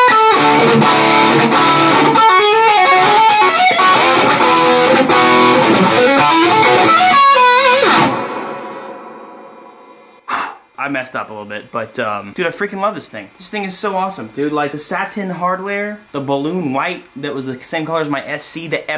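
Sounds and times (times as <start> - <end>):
electric guitar playing runs and chords: 0.0 - 10.2.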